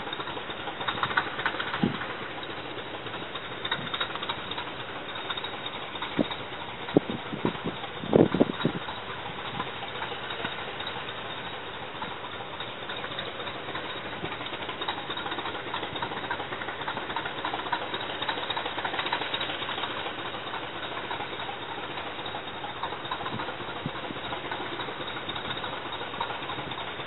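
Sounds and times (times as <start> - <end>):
diesel locomotive engines droning: 0.0 - 27.0.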